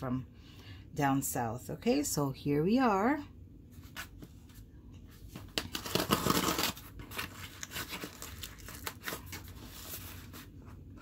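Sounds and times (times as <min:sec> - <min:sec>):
packing tape ripping: 0:05.6 - 0:09.3.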